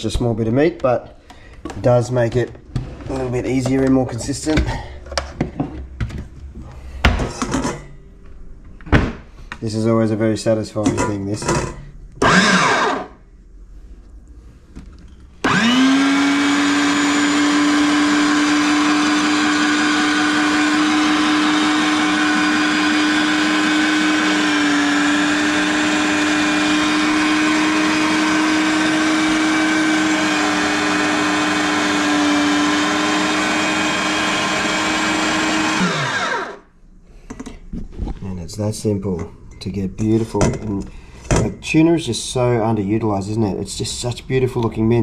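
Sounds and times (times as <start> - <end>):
electric meat grinder motor hum: 12.2 - 13.1, 15.4 - 36.6.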